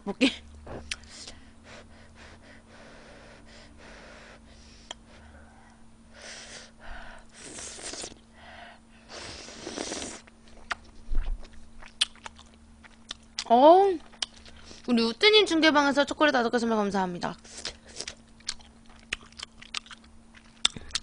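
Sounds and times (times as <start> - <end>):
breathing: 1.1 - 7.4, 8.3 - 9.5
slurping noodles: 7.3 - 8.2, 9.1 - 10.3
chewing: 9.8 - 14.7, 17.6 - 21.0.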